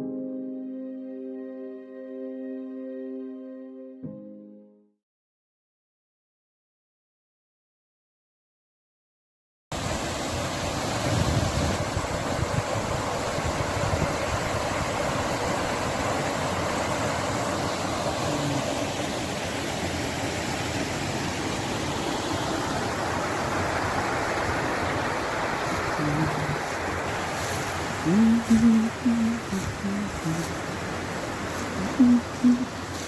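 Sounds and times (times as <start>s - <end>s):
stream rushing: 9.8s - 33.0s.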